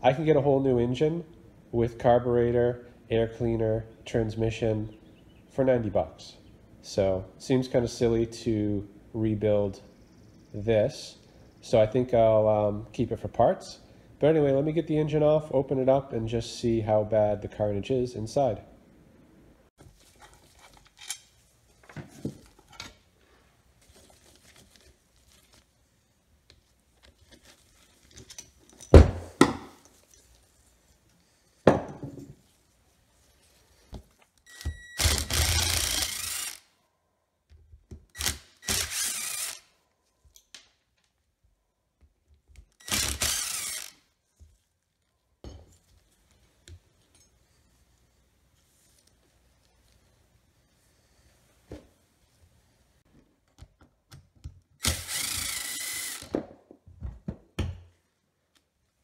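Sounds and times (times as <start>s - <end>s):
cordless power driver running: 34.5s - 36.6s, 42.8s - 44.0s, 54.8s - 56.3s.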